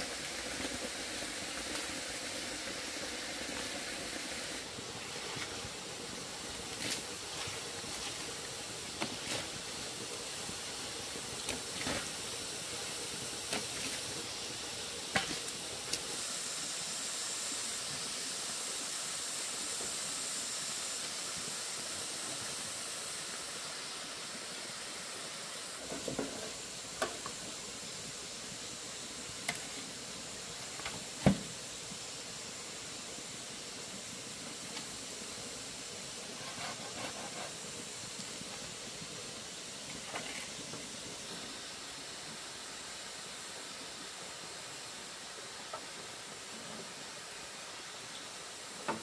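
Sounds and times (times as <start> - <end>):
rushing stream water: 0.0 - 49.0.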